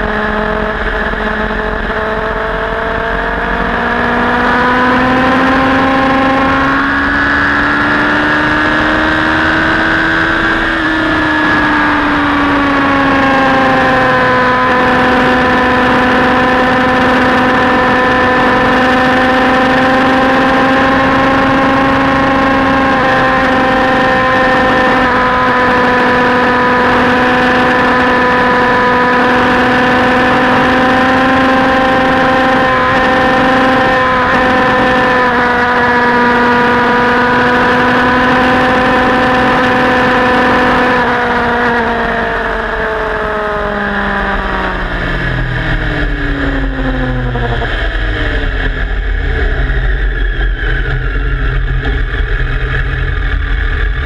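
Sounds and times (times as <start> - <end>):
motorcycle engine at speed: 0.0 - 54.0
low rumble: 43.8 - 54.0.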